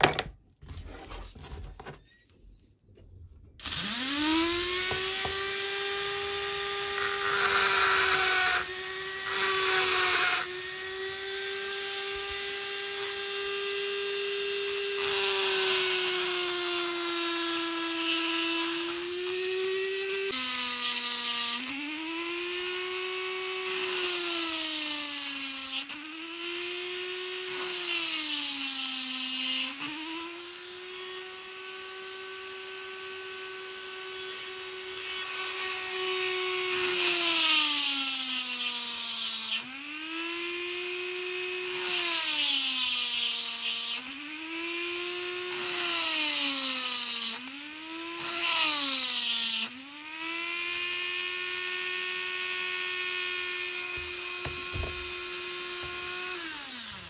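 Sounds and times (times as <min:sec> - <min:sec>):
rotary tool motor whine: 0:03.6 - 0:57.0
grinding on steel: 0:06.8 - 0:10.5.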